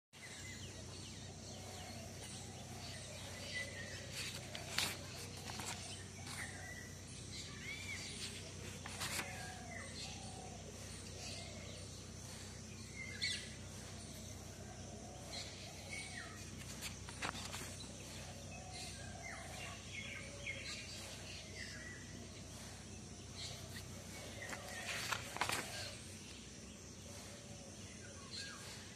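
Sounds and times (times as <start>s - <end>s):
notebook pages turning: 3.2s - 6.8s, 7.8s - 9.8s, 16.5s - 17.9s, 23.8s - 26.0s.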